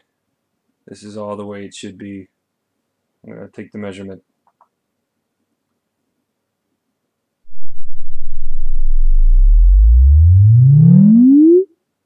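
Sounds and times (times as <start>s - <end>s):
low sine sweep tone: 7.5s - 11.7s.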